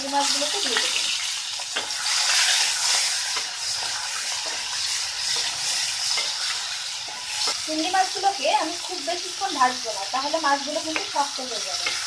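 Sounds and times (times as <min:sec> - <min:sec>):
prawns sizzling in hot oil: 0:00.0 - 0:12.0
wooden spatula stirring: 0:01.6 - 0:07.6.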